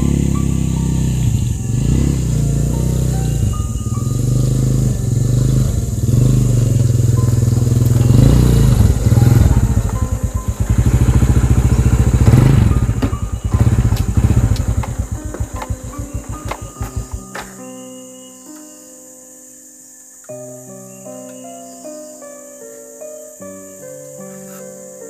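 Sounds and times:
small motorcycle engine: 0.0s - 17.5s.

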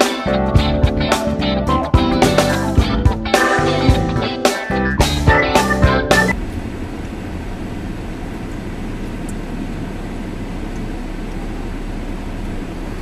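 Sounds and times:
car engine and road noise: 6.3s - 13.0s.

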